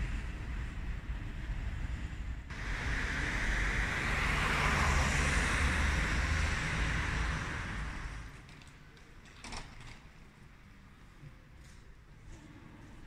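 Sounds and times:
wind rumble on microphone: 0:00.0 - 0:08.4
vehicle tyres passing on road: 0:00.0 - 0:09.0.

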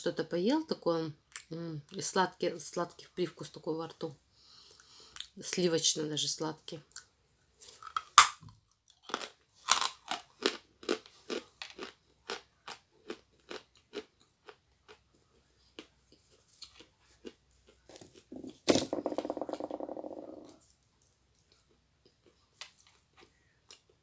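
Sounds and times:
crunching and chewing clay: 0:07.7 - 0:18.6, 0:20.2 - 0:24.0.

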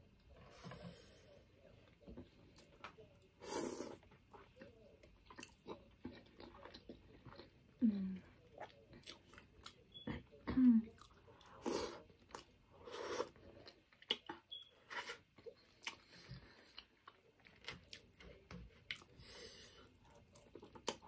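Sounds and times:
person chewing and smacking: 0:04.0 - 0:07.7, 0:08.6 - 0:09.8, 0:13.2 - 0:19.2, 0:20.0 - 0:21.0.

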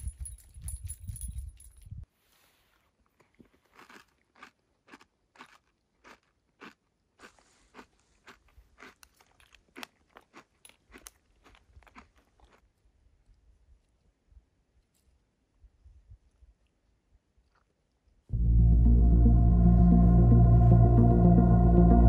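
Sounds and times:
faint regular crunching: 0:00.0 - 0:14.1.

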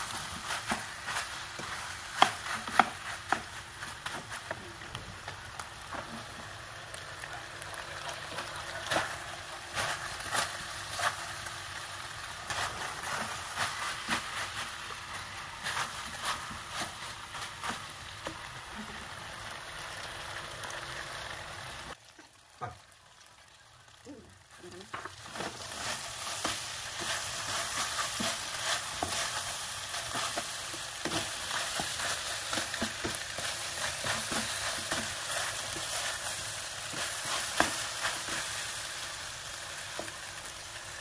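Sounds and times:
meatballs sizzling in a pan: 0:00.0 - 0:41.0
spatula scraping a pan: 0:25.0 - 0:38.6.

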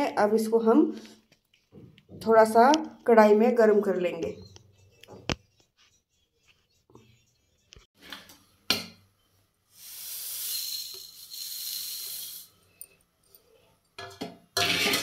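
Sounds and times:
seeds pouring into a pan: 0:10.0 - 0:12.5.

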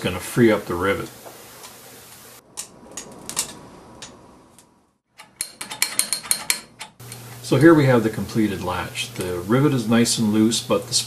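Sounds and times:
metal latch clicks: 0:05.2 - 0:07.2.

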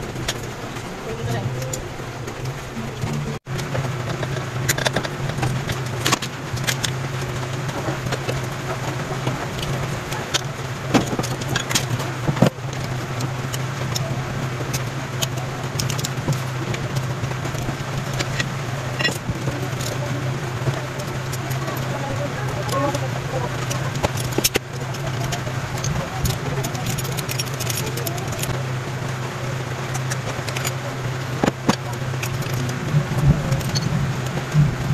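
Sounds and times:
steady low hum: 0:00.0 - 0:34.9
metallic clicks and clinks of tools: 0:23.6 - 0:28.6, 0:33.5 - 0:33.9.

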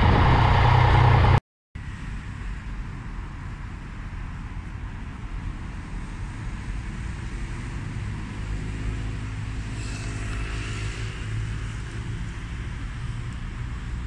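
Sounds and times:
cars driving by: 0:00.0 - 0:02.6, 0:05.8 - 0:14.0
small motorcycle engine drone: 0:00.0 - 0:02.6, 0:06.0 - 0:14.0.

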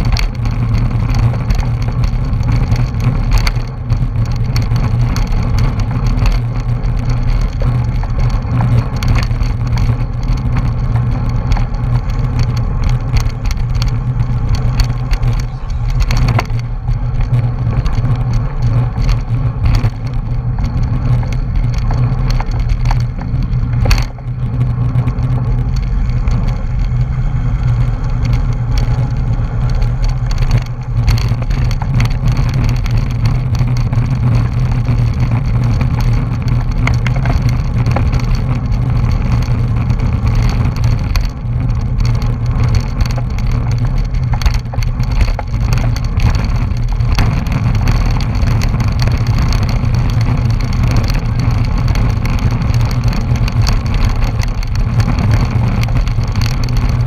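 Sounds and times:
road rumble: 0:00.0 - 0:57.0
wind buffeting: 0:00.0 - 0:57.0.

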